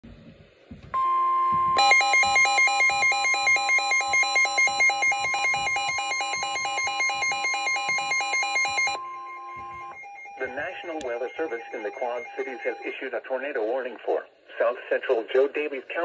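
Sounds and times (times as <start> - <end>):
steady high alarm tone: 1.0 - 13.0
two-tone warbling alarm: 1.0 - 13.0.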